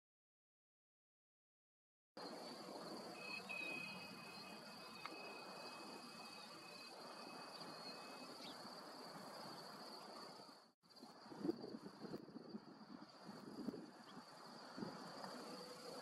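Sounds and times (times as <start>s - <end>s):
thin steady tone: 2.2s - 11.6s
insect buzzing trill: 2.9s - 12.1s.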